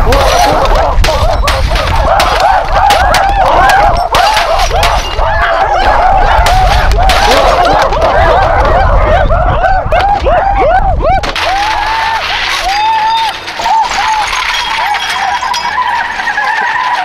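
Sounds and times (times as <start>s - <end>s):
people hooting and shrieking: 0.0s - 17.0s
monitor smashing on asphalt: 11.2s - 17.0s.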